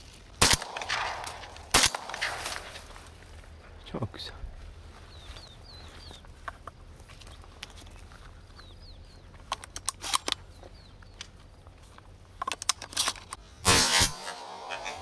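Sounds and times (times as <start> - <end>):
sharp clicks and rustles: 0.0 - 3.8, 6.1 - 13.5
faint bird chirps: 3.6 - 9.4.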